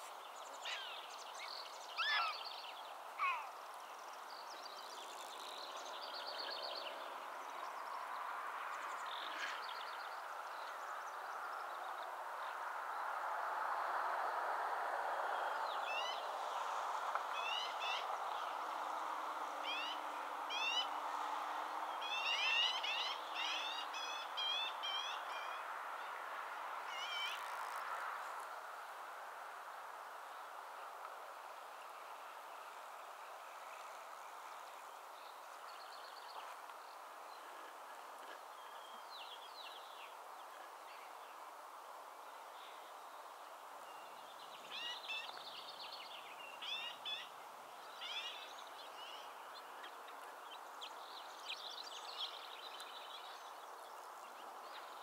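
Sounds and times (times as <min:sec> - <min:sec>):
falling calls: 0:02.0 - 0:02.5.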